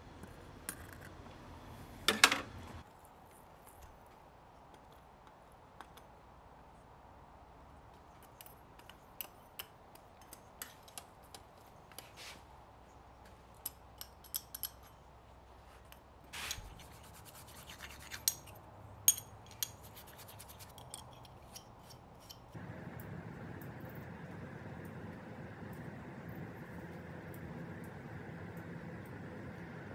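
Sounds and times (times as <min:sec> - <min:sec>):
steady background noise: 0:18.2 - 0:29.9
wax crackling on hot metal: 0:22.5 - 0:29.9.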